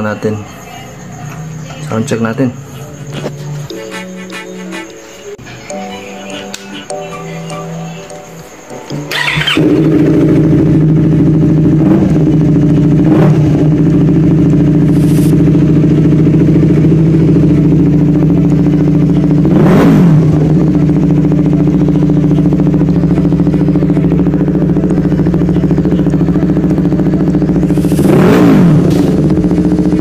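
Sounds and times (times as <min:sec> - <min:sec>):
motorcycle engine starting and idling: 0:08.9 - 0:30.0
engine revving: 0:09.0 - 0:30.0.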